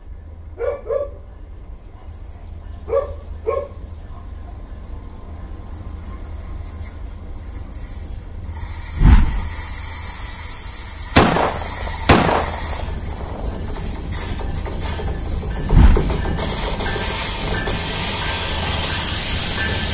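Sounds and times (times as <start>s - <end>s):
locomotive rumble: 0.0s - 19.9s
steady high hiss: 8.6s - 13.7s.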